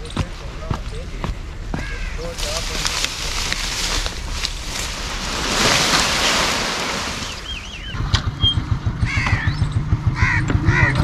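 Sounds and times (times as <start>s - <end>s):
bird calls: 0.0s - 11.0s
crow cawing: 1.7s - 4.3s, 9.1s - 9.5s, 10.2s - 11.0s
motorcycle engine running: 7.5s - 11.0s.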